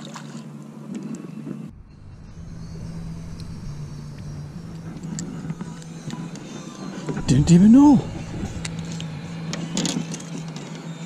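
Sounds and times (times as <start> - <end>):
low rumble: 1.6 - 11.0
small motor humming: 1.7 - 11.0.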